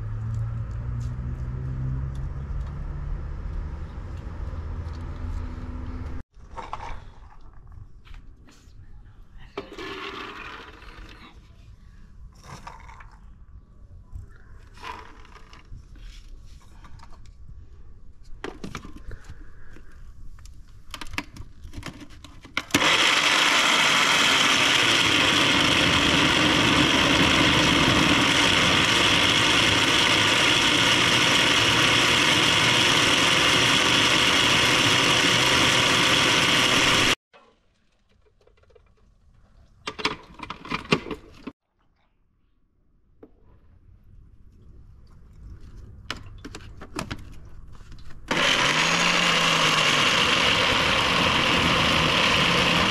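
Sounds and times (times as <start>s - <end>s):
electric blender running: 22.7s - 37.2s, 48.3s - 52.9s.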